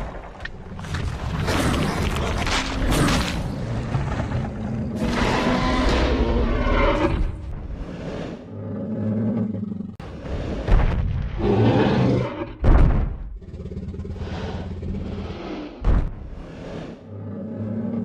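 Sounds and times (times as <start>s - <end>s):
dinosaur roars: 1.4s - 10.5s, 11.4s - 12.6s, 16.5s - 18.0s.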